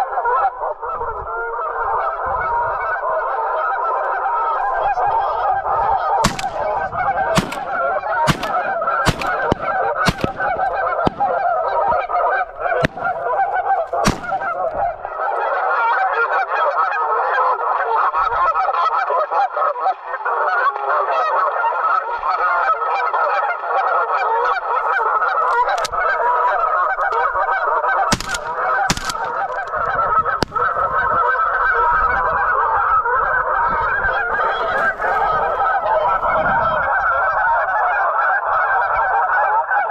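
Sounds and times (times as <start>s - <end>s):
geese honking: 0.0s - 39.9s
sharp clicks: 6.2s - 11.6s, 12.7s - 14.8s, 28.1s - 29.8s.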